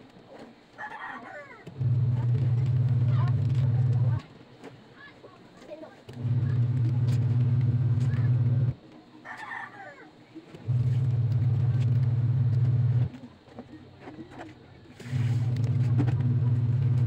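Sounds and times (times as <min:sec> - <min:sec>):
low machine hum: 0:00.2 - 0:04.3, 0:05.8 - 0:17.0
rooster crowing: 0:09.2 - 0:10.1.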